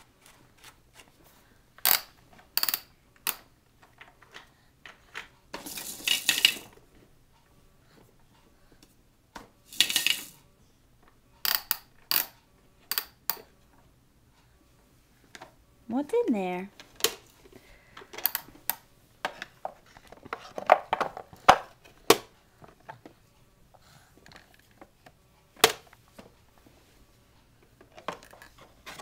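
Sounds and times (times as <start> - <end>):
plastic toy pieces knocking: 1.8 - 4.4, 5.1 - 6.7, 9.8 - 10.4
toy pieces rattling clatter: 5.6 - 6.7, 9.7 - 10.4.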